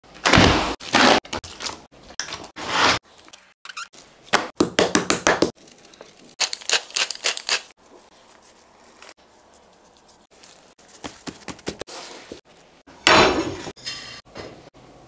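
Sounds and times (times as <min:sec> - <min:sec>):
salt sprinkling: 0:05.6 - 0:12.0.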